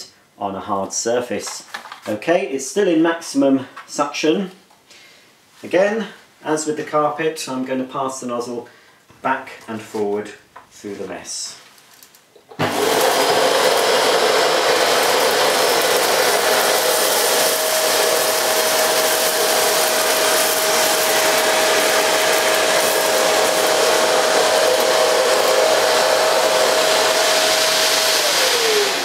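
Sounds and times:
vacuum cleaner whining: 12.5 - 29.0
motor winding down: 12.6 - 29.0.

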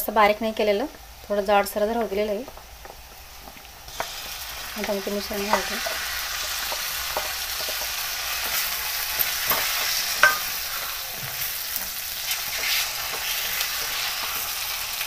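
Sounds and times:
food sizzling in pan: 0.0 - 15.0
spatula scraping metal pan: 12.2 - 14.5.

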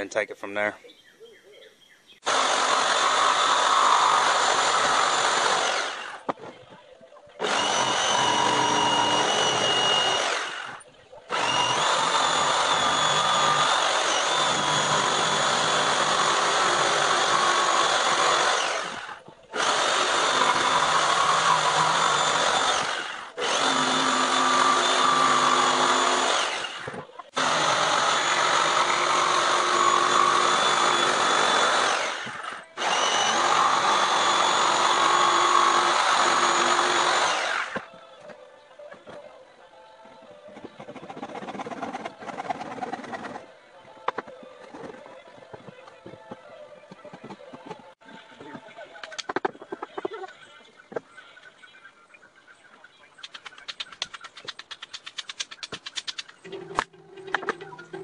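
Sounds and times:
power tool running: 2.2 - 6.3, 7.4 - 37.9.

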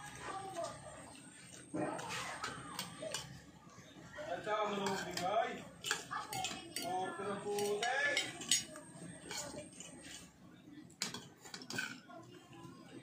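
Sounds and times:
voices talking: 0.0 - 13.0
cutlery clinking on a plate: 4.8 - 10.2, 11.0 - 12.0.

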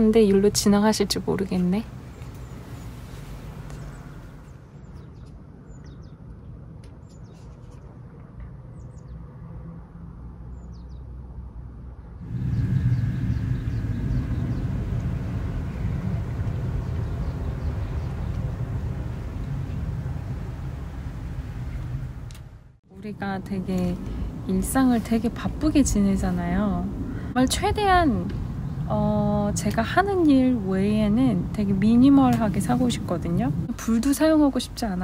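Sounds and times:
small birds chirping: 1.6 - 7.9, 12.4 - 19.8
low rumble: 11.3 - 34.2
motorboat droning: 12.2 - 22.4.

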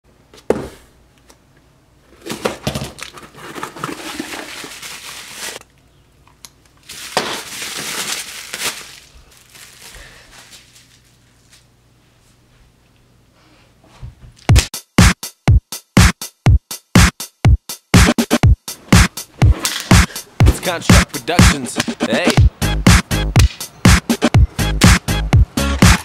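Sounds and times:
bubble wrap crinkling: 2.2 - 5.7, 6.7 - 11.8.

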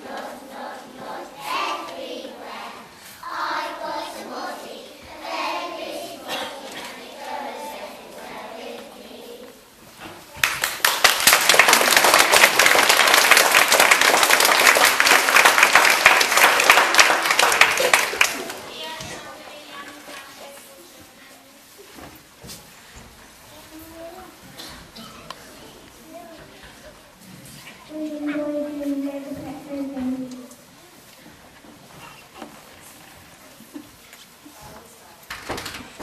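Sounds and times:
children singing together: 0.0 - 9.5, 27.8 - 30.6
audience applause: 10.4 - 18.7.

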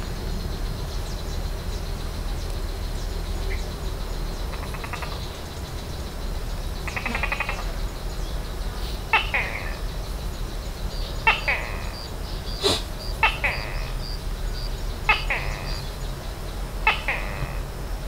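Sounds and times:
thin fast pulsing call: 3.4 - 17.7
sharp falling two-part animal call: 12.6 - 13.9.

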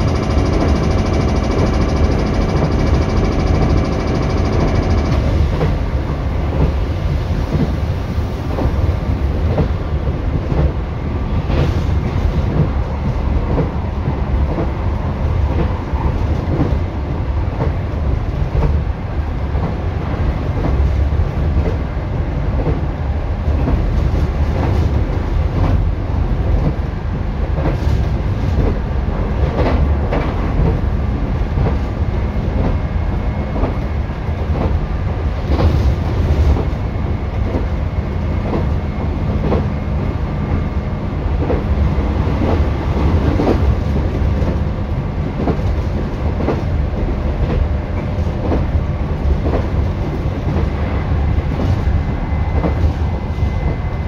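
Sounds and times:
wheels clicking over rail joints: 0.0 - 6.8
train wheels rumbling on rail: 0.0 - 54.0.

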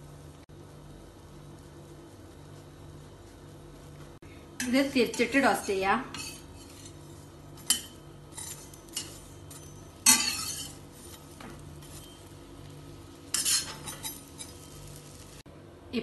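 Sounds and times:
faint steady hum: 0.0 - 16.0
metal spatula clinking on pan: 7.6 - 10.8, 13.3 - 14.6.

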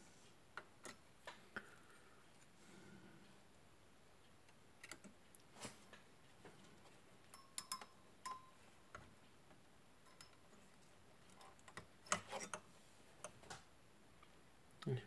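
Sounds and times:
small parts clicking and tapping: 7.3 - 9.0.

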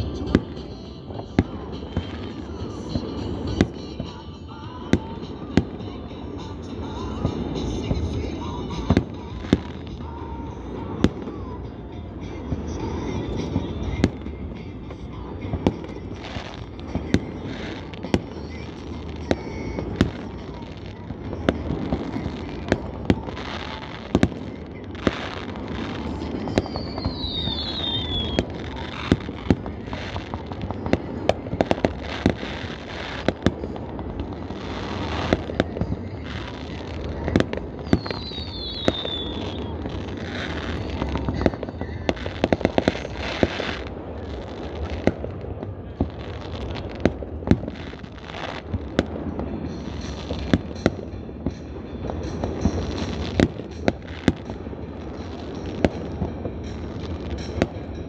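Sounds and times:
continuous rumble: 0.0 - 58.0
fireworks bangs and pops: 0.0 - 58.0
falling firework whistle: 25.1 - 30.4, 37.8 - 43.9.

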